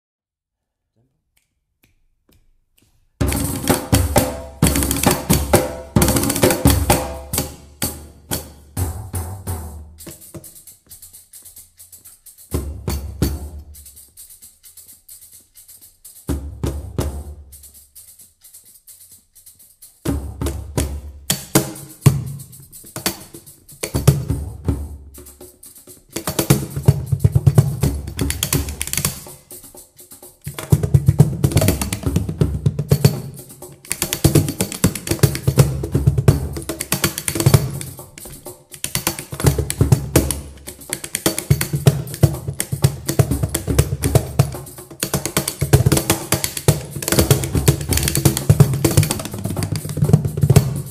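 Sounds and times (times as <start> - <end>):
sharp drum slaps: 3.2 - 10.2
hand drums playing: 3.2 - 50.9.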